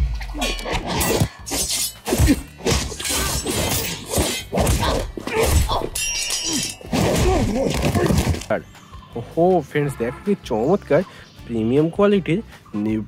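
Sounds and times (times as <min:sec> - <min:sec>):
fight hits kicks and crashes: 0:00.3 - 0:06.0, 0:06.8 - 0:08.5.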